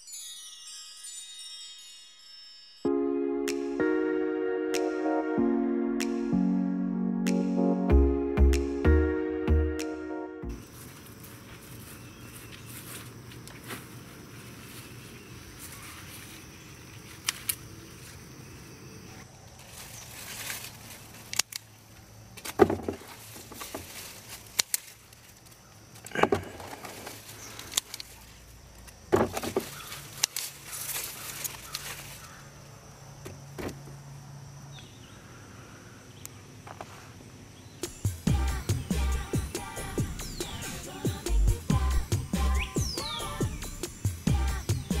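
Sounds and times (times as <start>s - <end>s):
leaves rustling: 10.5s - 32.8s
scissors snipping stems: 17.1s - 17.7s, 21.2s - 21.8s, 24.4s - 26.1s, 30.0s - 31.9s.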